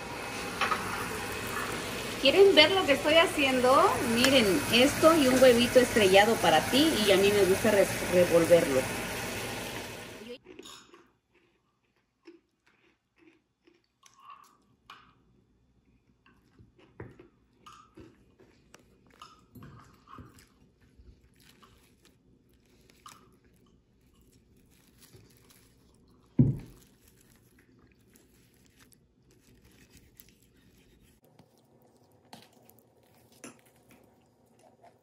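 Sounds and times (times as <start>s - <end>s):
chewing: 10.4s - 35.0s.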